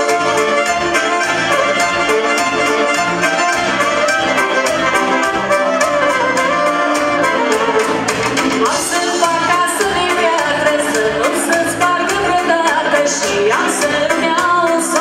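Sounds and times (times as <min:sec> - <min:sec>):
saxophone melody: 0:00.0 - 0:09.6
live folk dance band: 0:00.0 - 0:15.0.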